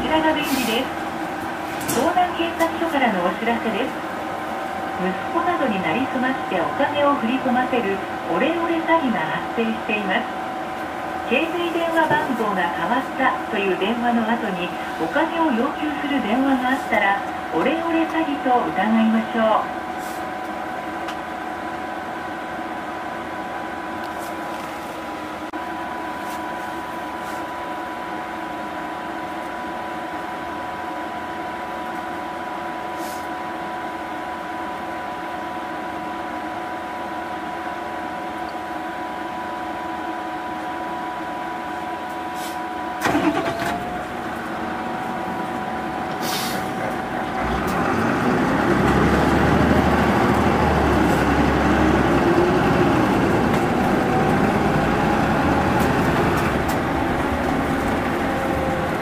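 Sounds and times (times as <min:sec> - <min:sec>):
bus cabin hum: 0:00.0 - 0:59.0
bus engine accelerating: 0:00.0 - 0:59.0.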